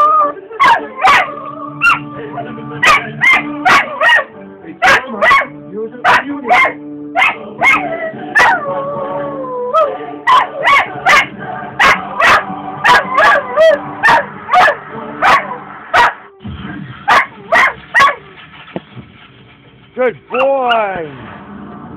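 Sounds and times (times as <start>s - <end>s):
dog howling: 0.0s - 2.0s, 6.1s - 16.2s
dog barking and yipping: 0.6s - 2.0s, 2.8s - 8.6s, 9.8s - 16.2s, 17.1s - 18.2s.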